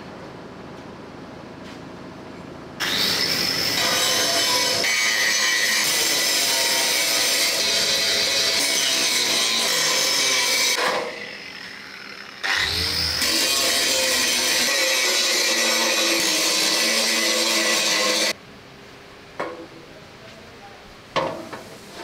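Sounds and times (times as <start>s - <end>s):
angle grinder grinding steel: 2.8s - 18.4s.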